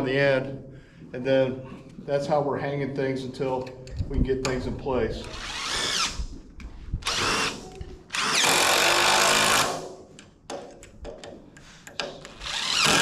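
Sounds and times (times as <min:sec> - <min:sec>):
cordless drill driving screws: 0:05.2 - 0:06.2, 0:07.0 - 0:09.8, 0:12.3 - 0:13.0.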